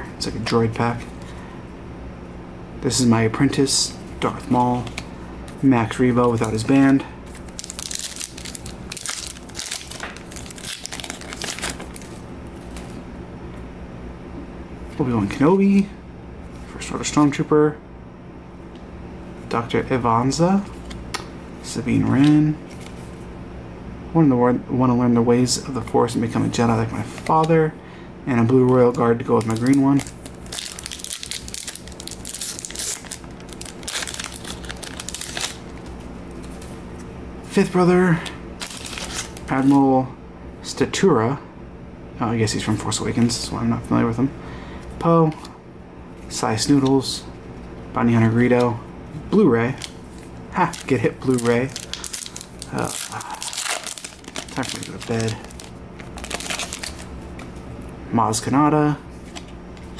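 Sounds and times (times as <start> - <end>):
wrapper crinkling: 6.2 - 12.2, 28.6 - 36.8, 38.6 - 39.7, 49.7 - 57.5.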